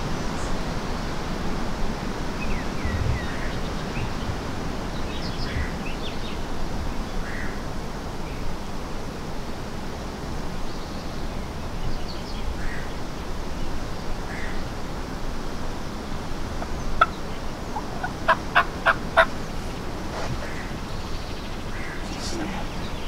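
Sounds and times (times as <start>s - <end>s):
wild turkey calling: 16.5s - 23.0s.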